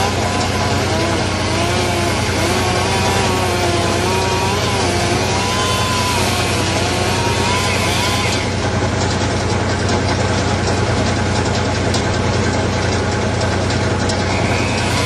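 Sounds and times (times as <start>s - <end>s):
chainsaw cutting wood: 0.0s - 9.2s, 14.1s - 15.0s.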